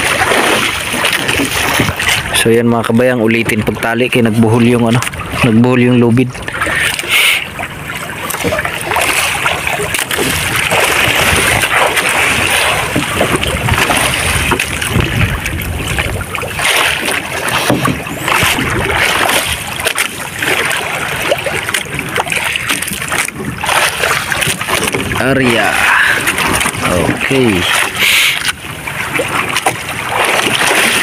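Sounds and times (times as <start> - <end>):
waves slapping boat hull: 0.0 - 31.0
wind on microphone: 8.4 - 19.8, 21.2 - 31.0.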